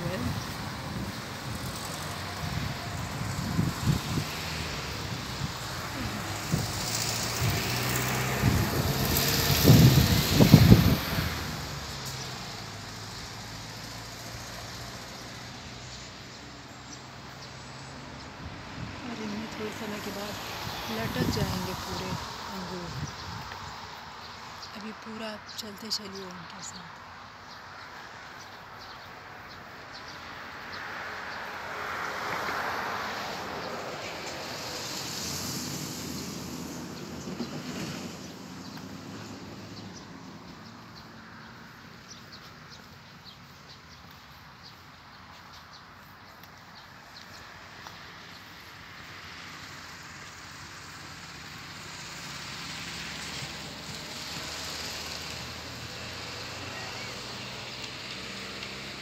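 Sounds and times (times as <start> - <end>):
wind buffeting microphone: 0.0 - 11.8, 18.5 - 23.8
road noise hiss: 0.0 - 59.0
vehicle engine hum: 0.0 - 59.0.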